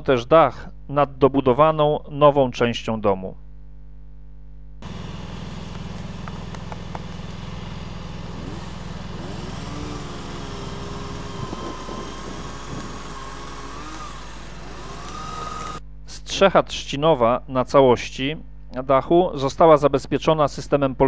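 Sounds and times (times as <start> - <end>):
small engine buzzing: 4.8 - 15.8
high whine: 4.8 - 15.9.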